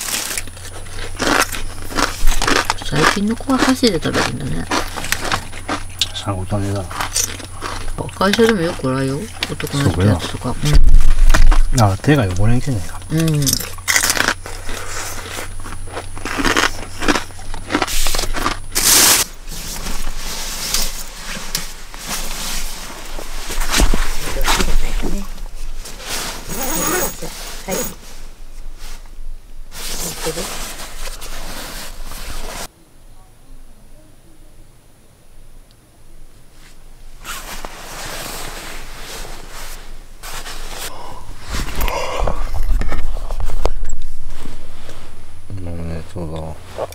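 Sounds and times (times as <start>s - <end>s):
plastic snack bag crinkling: 0.0s - 5.8s, 13.6s - 19.3s
sleeping bag rustling: 18.8s - 29.0s, 29.7s - 32.7s, 36.6s - 41.8s.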